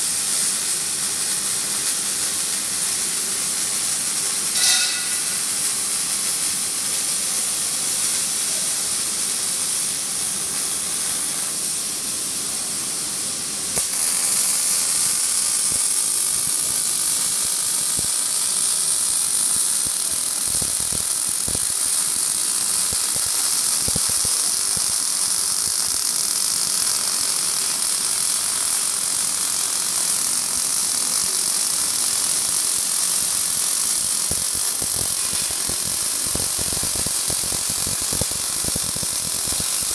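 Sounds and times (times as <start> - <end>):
welding arc crackling hiss: 0.0 - 39.9.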